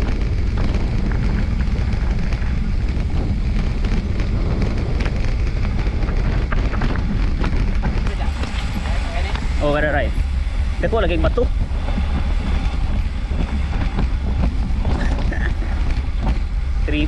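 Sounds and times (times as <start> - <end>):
small clicks and rattles: 0.0 - 9.4
bike tyre on loose stones: 0.0 - 17.0
wind on microphone: 0.0 - 17.0.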